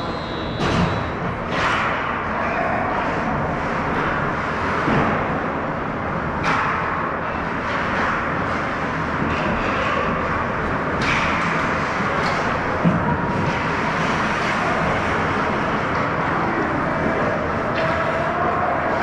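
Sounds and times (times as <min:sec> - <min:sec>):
arena background noise: 0:00.0 - 0:19.0.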